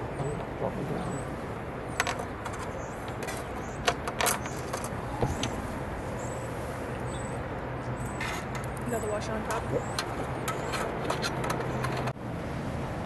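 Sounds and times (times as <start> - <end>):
frame scraping on rail: 9.5 - 12.2.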